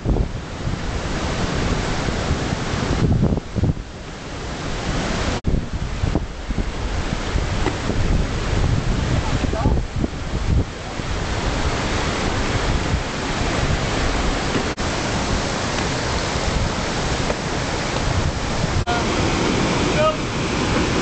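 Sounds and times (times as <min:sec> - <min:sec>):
wind buffeting the microphone: 0:00.0 - 0:21.0
river rapids rushing: 0:03.8 - 0:21.0.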